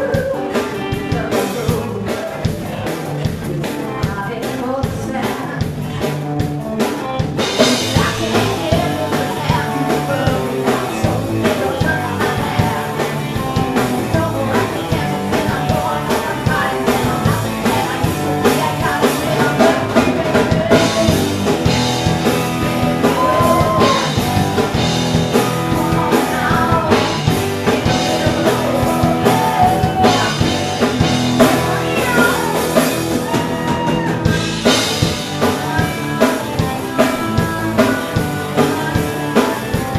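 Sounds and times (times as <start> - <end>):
bass guitar: 0.0 - 39.9
drum kit beat: 0.0 - 39.9
electric guitars: 0.0 - 39.9.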